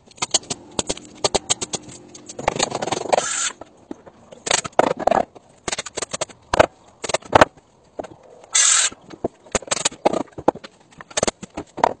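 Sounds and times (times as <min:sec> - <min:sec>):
sharp knocks and clatter: 0:00.0 - 0:08.2, 0:09.0 - 0:12.0.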